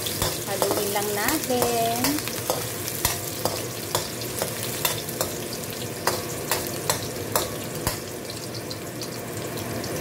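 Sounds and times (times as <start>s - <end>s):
onion sizzling in oil: 0.0s - 10.0s.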